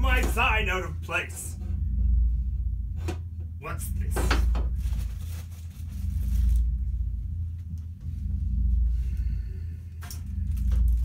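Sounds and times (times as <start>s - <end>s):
low rumble: 0.0s - 11.0s
gift wrapping rustling: 4.6s - 6.8s.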